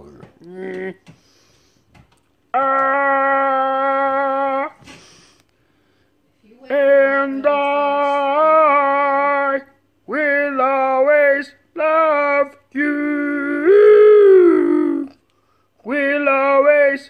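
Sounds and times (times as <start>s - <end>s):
person singing slow tune: 2.5s - 5.0s, 6.6s - 17.0s.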